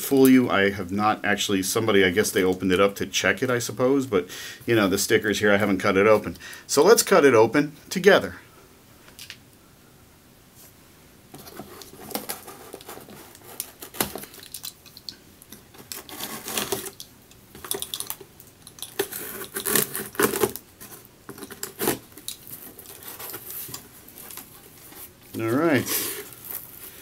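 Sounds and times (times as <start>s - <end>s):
cardboard and tape ripping: 15.7s - 17.0s, 19.0s - 27.0s.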